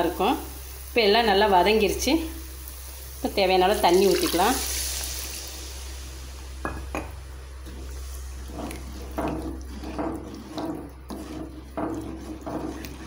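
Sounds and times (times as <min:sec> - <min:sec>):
spatula sloshing and scraping curry: 0:07.6 - 0:13.0.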